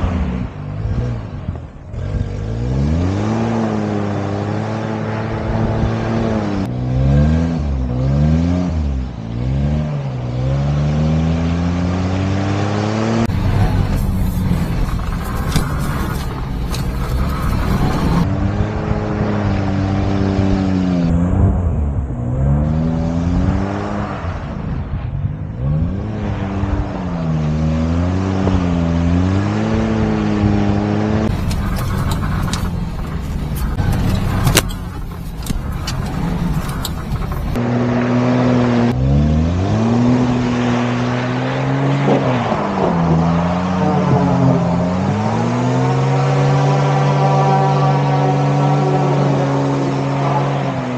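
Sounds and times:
truck engine revving under load: 0:00.0 - 0:21.6, 0:25.6 - 0:50.9
sharp clicks: 0:31.3 - 0:37.6.

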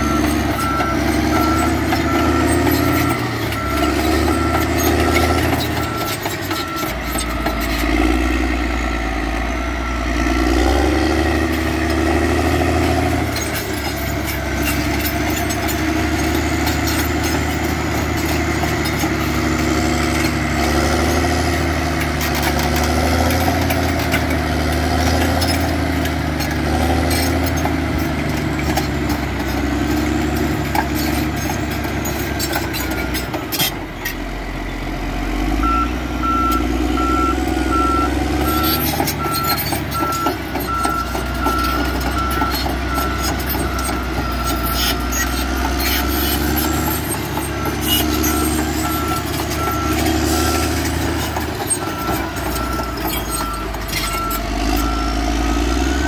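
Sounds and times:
track clatter: 0:00.0 - 0:09.5, 0:10.6 - 0:34.4, 0:37.6 - 0:56.0
reversing alarm beeping: 0:00.0 - 0:21.8, 0:35.6 - 0:56.0
bulldozer diesel engine running: 0:00.0 - 0:56.0.

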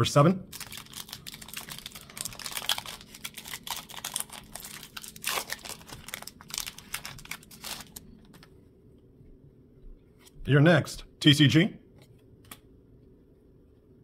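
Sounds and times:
foil wrapper tearing and crinkling: 0:00.5 - 0:08.4.

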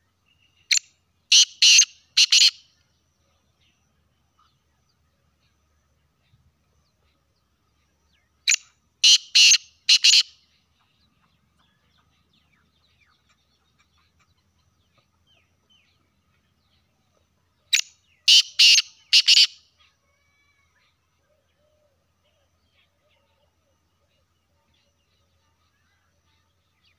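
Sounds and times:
francolin calling: 0:00.3 - 0:02.9, 0:08.1 - 0:10.8, 0:17.7 - 0:24.2.

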